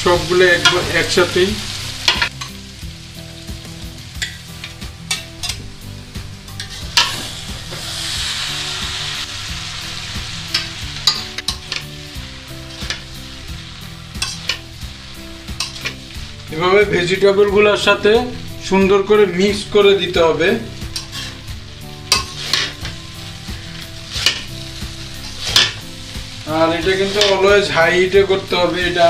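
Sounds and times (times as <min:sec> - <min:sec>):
food sizzling in a wok: 0:00.0 - 0:29.0
metal spatula scraping a wok: 0:06.5 - 0:16.4, 0:20.8 - 0:27.5.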